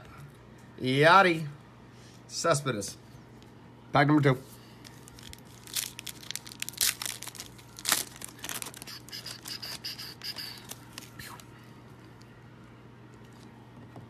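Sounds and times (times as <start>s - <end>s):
foil wrapper tearing and crinkling: 4.8s - 11.2s.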